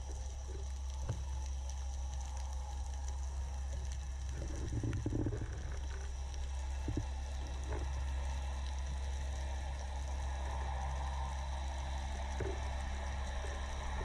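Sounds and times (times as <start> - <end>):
underwater low rumble: 0.0 - 14.0.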